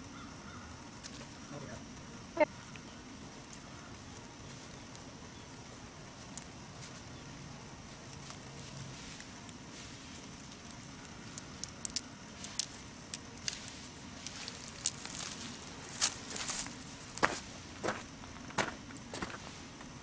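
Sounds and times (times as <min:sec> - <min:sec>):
soil and leaves rustling: 0:00.1 - 0:20.0
dry leaves crunching: 0:13.5 - 0:17.6.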